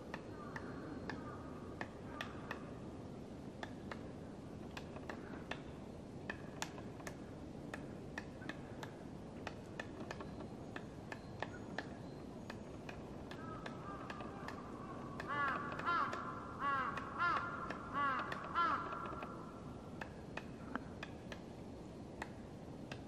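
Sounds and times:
bird calling in repeated notes: 0.1 - 2.8, 10.1 - 19.6
woodpecker knocking on tree trunk: 6.3 - 14.6, 15.2 - 19.4.

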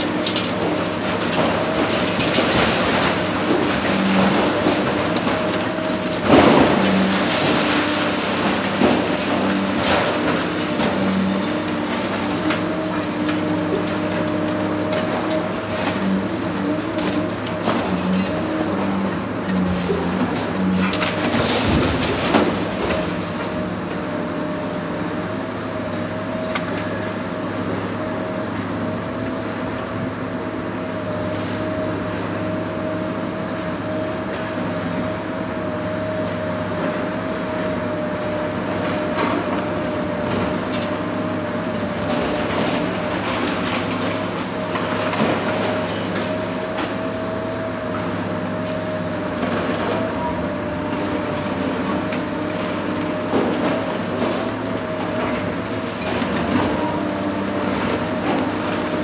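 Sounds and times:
excavator diesel engine whining: 0.0 - 59.0
demolition knocks and crunches: 0.2 - 23.7, 38.8 - 47.7, 49.0 - 59.0.

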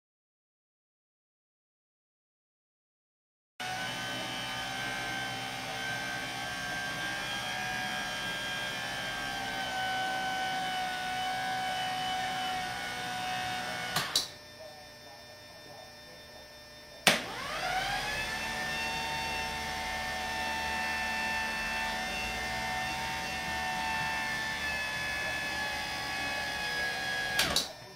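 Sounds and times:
wiper motor whining: 3.6 - 14.3, 17.2 - 27.9.

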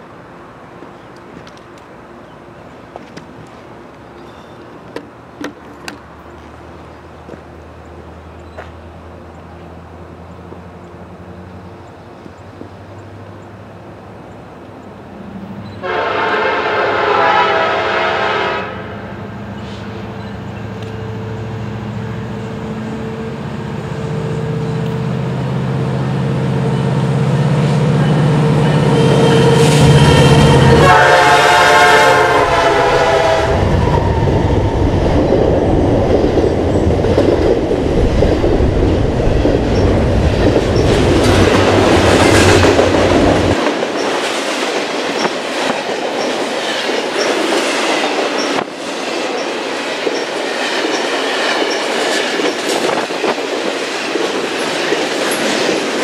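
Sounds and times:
locomotive engine drone: 0.0 - 44.4
train horn blasts: 15.8 - 19.8, 27.6 - 34.6
train wheels clattering: 35.3 - 56.0.

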